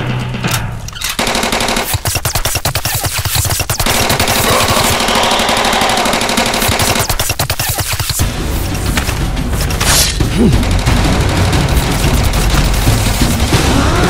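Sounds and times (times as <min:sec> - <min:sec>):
rapid automatic gunfire: 0:01.2 - 0:08.4, 0:10.6 - 0:14.0.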